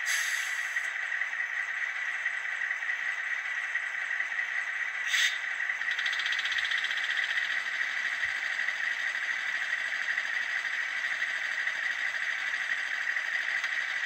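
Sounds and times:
short sharp hiss: 0:00.0 - 0:00.9
model diesel engine idling: 0:00.0 - 0:14.0.

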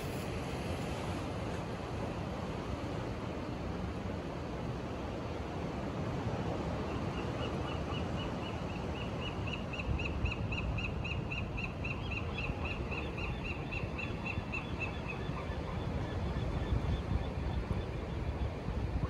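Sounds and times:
surf: 0:00.0 - 0:10.0
wind: 0:00.0 - 0:19.0.

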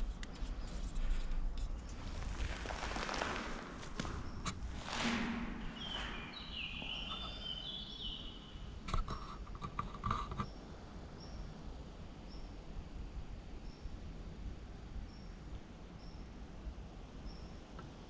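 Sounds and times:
scuffs and scrapes on concrete: 0:00.3 - 0:07.6
whistled bird notes: 0:05.6 - 0:08.6
small birds chirping: 0:05.6 - 0:09.4
sharp taps and scrapes: 0:08.9 - 0:10.5.

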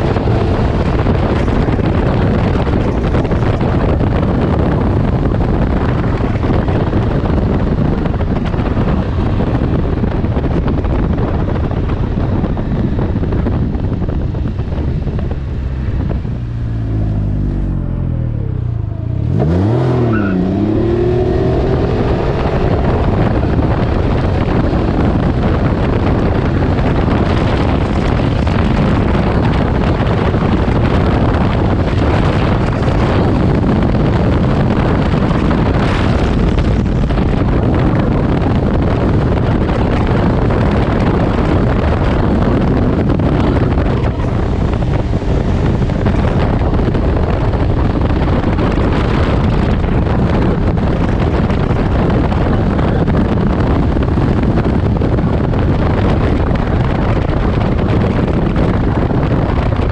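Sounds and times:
motorcycle engine running: 0:00.0 - 0:19.3, 0:20.4 - 0:59.9
wind rushing on microphone: 0:00.0 - 0:59.9.

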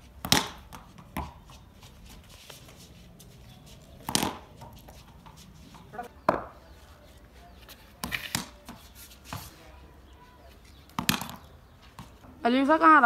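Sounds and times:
ball bouncing on concrete: 0:00.0 - 0:06.8, 0:07.6 - 0:09.6, 0:10.8 - 0:12.4
bat striking ball: 0:00.2 - 0:00.6, 0:04.1 - 0:04.5.

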